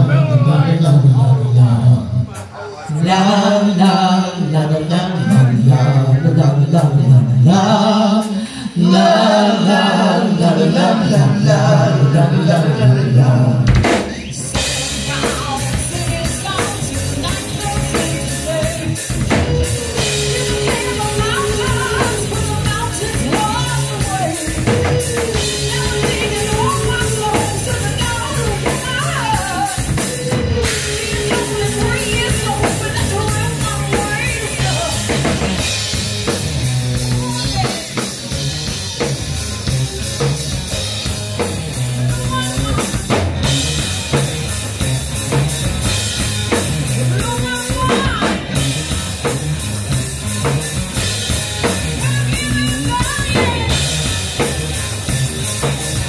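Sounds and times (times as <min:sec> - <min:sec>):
electric guitars: 0:00.0 - 0:56.0
drum kit beat: 0:12.4 - 0:56.0
woman singing: 0:14.5 - 0:35.5, 0:47.1 - 0:48.5, 0:52.0 - 0:54.0.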